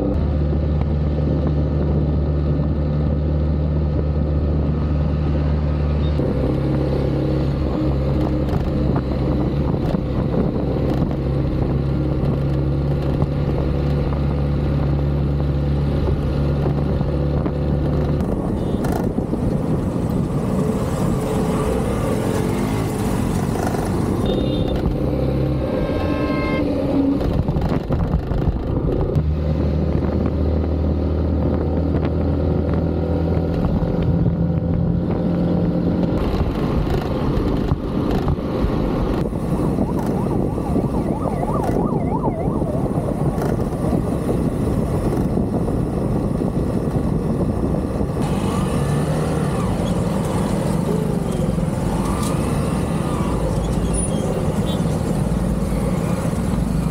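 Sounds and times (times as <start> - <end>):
motorcycle engine hum: 0.0 - 56.9
wind and road noise: 0.0 - 56.9
horn sounding: 24.2 - 24.9, 25.7 - 26.8.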